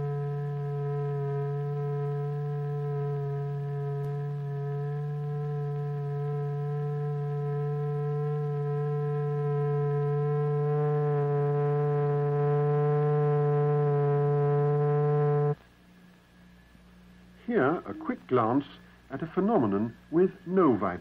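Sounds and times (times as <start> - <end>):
steady electronic tone: 0.0 - 15.6.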